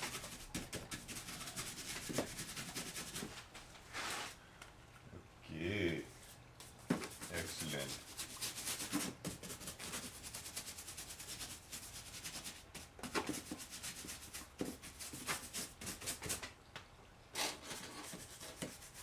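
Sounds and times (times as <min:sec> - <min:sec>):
paintbrush scrubbing textured surface: 0:00.0 - 0:04.4, 0:07.0 - 0:16.4, 0:17.7 - 0:19.0.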